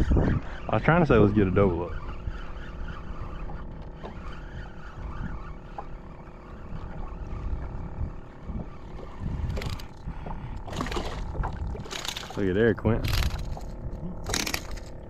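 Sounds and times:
boat motor humming: 0.0s - 15.0s
wind buffeting microphone: 0.0s - 15.0s.

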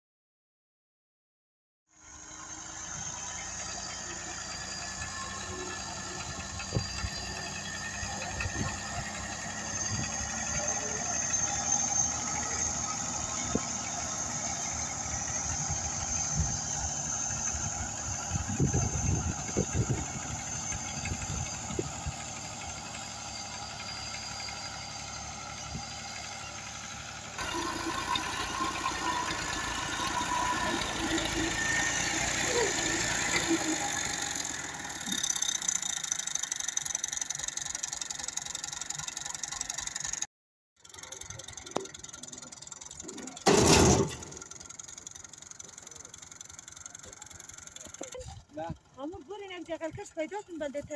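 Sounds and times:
tractor engine running: 2.0s - 50.9s
engine knocks: 40.8s - 50.7s.

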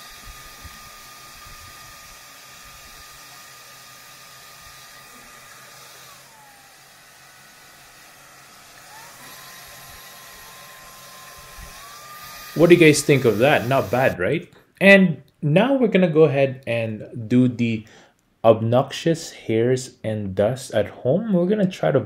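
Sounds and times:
stick vacuum running: 0.0s - 14.2s.

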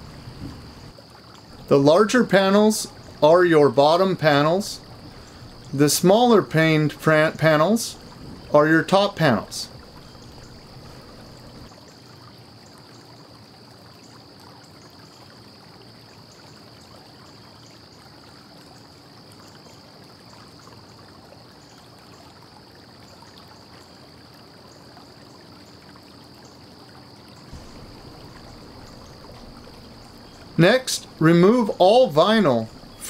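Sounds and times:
background hiss: 0.0s - 11.7s, 26.5s - 33.0s
faint low hum: 27.5s - 33.0s.

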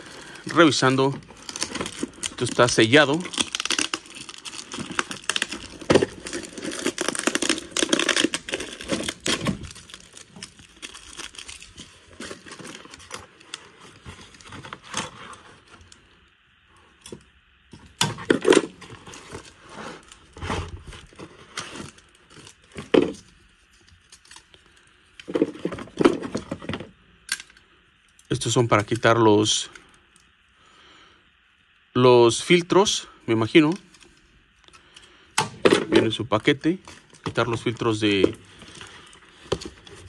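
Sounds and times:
paper tearing and crumpling: 0.0s - 15.4s.

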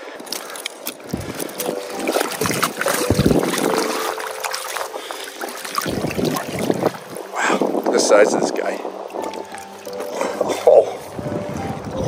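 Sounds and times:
river water splashing around net: 0.0s - 11.2s.

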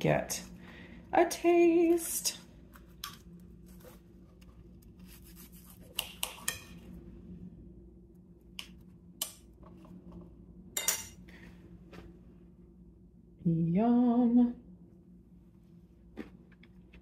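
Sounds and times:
faint low hum: 0.0s - 17.0s
cutlery scraping on a plate: 6.3s - 6.8s.

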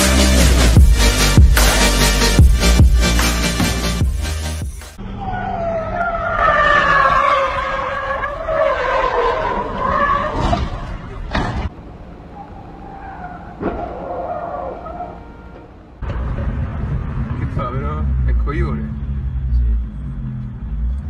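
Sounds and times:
car tyres squealing: 5.0s - 16.3s.

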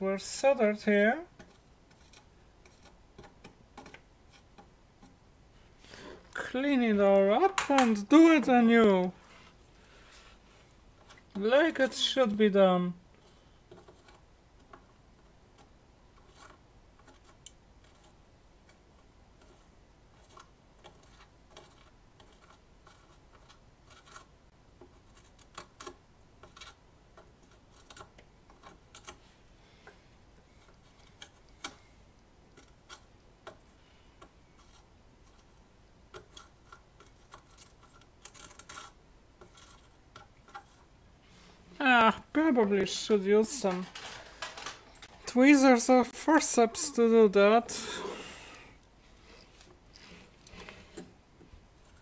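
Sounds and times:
soldering iron clicks and scrapes: 1.4s - 5.2s.

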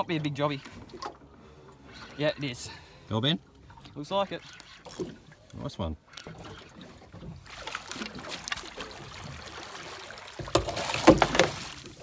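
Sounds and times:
fish thrashing water splashing: 6.2s - 12.0s.

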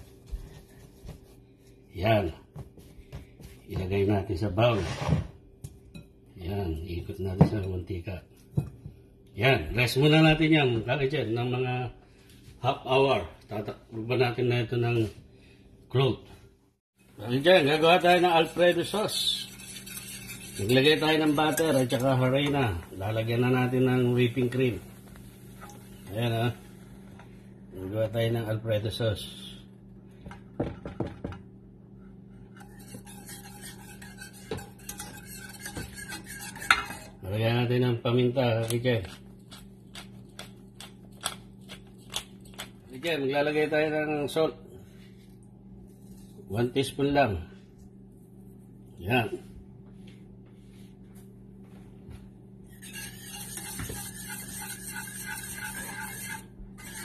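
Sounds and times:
whisk scraping a metal pan: 17.2s - 24.8s, 32.4s - 37.2s, 52.7s - 57.0s
whisk tapping pan: 17.4s - 25.9s, 32.5s - 37.2s, 52.8s - 57.0s.

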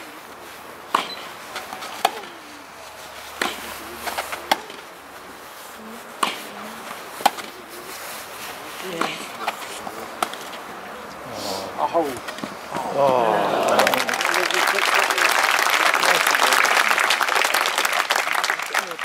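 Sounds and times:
tennis ball hit by rackets: 0.9s - 2.4s, 3.3s - 4.9s, 6.2s - 6.5s, 7.2s - 7.6s, 9.0s - 10.6s.

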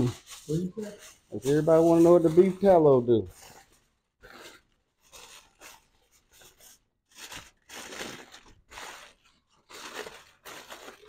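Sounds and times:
aluminium foil crinkling: 0.0s - 11.0s.

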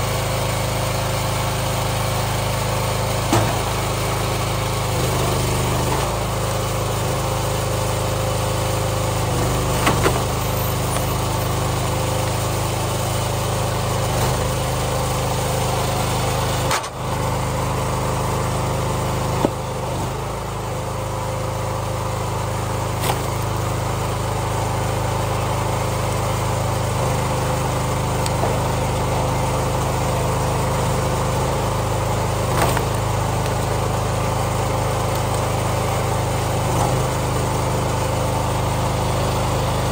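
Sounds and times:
log splitter engine running: 0.0s - 39.9s
wood splitting cracks: 23.0s - 23.6s, 32.5s - 33.9s.

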